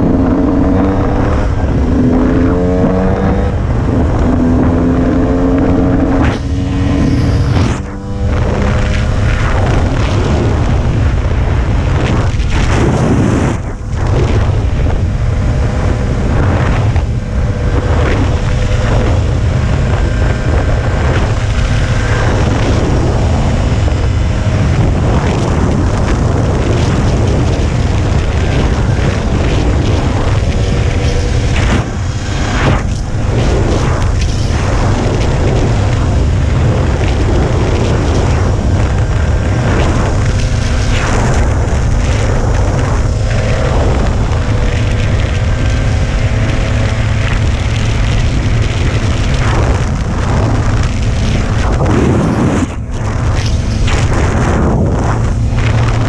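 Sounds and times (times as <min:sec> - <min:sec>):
dirt bike engine running: 0:00.0 - 0:56.0
wind noise on microphone: 0:00.0 - 0:56.0.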